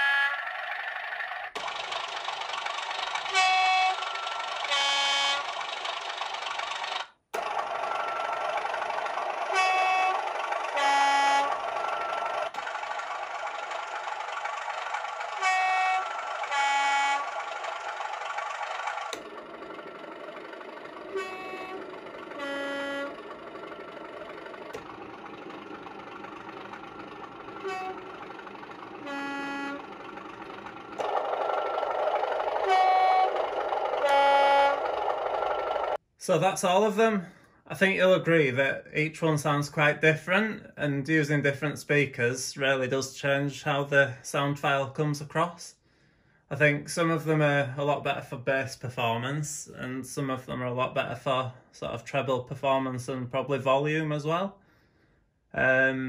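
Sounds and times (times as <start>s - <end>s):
model locomotive horn blasts: 0.0s - 0.6s, 3.2s - 5.6s, 9.4s - 12.6s, 15.2s - 17.4s, 21.0s - 23.8s, 27.3s - 31.2s, 32.4s - 36.0s
diesel engine running: 0.0s - 36.0s.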